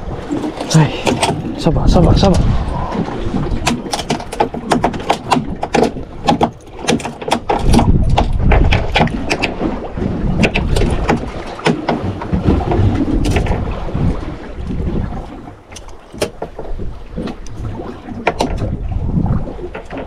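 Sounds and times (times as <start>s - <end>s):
water noise: 0.0s - 20.0s
wind buffeting microphone: 0.0s - 20.0s
sharp clicks and knocks: 0.3s - 1.7s, 3.6s - 9.6s, 10.4s - 13.6s, 15.7s - 17.6s, 18.2s - 18.7s.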